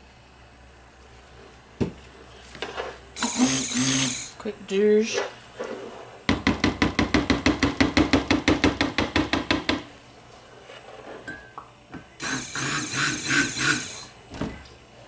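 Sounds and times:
rustling scrape: 5.5 - 6.2, 10.3 - 11.3.

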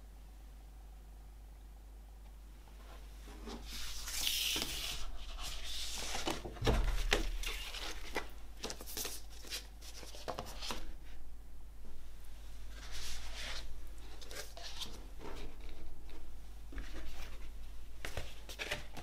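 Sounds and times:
paper and card rustling: 3.4 - 10.9, 12.7 - 19.0
dull thump: 6.5 - 7.6.

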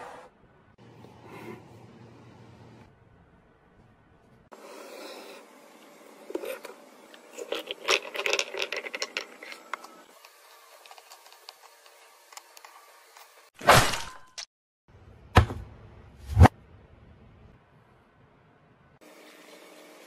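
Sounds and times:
plastic toy pieces clicking and rattling: 7.5 - 9.8.

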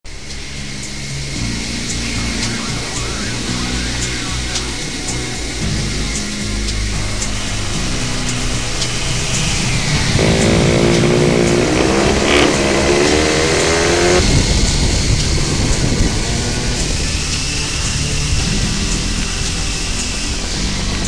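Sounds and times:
model airplane engine revving: 2.0 - 21.0.

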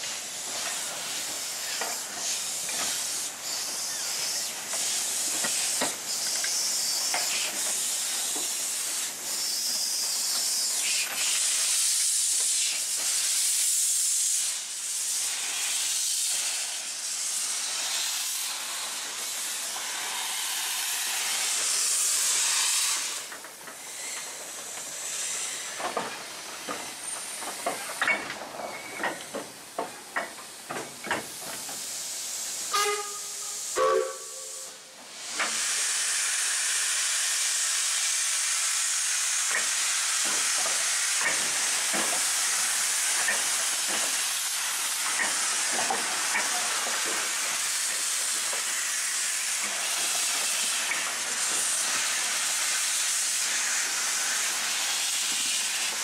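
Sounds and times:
steam hissing: 0.0 - 56.0
short pitched tones: 32.8 - 34.8.

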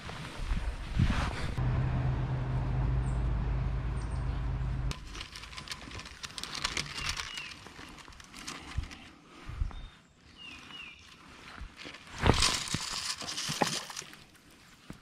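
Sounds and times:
low hum: 1.4 - 6.0
fishing line clicks and rustles: 4.9 - 9.4, 11.0 - 15.0.

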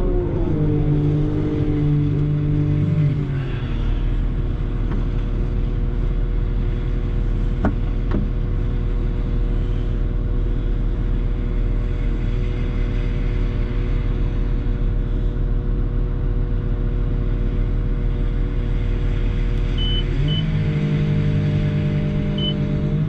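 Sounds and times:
loader diesel engine revving: 19.2 - 23.0.

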